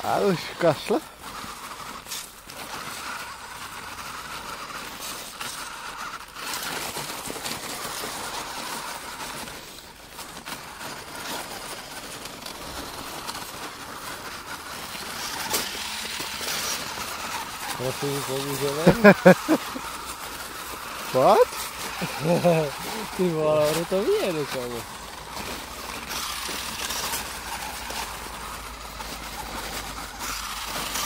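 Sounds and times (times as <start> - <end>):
rc car motor whining: 0.0 - 31.0.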